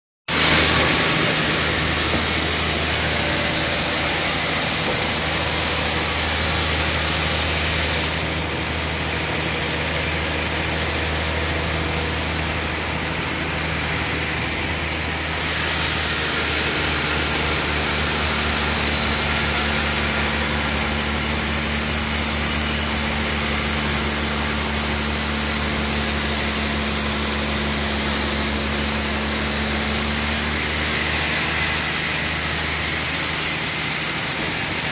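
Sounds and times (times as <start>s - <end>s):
sawmill hiss: 0.3s - 34.9s
low machine hum: 0.4s - 15.3s.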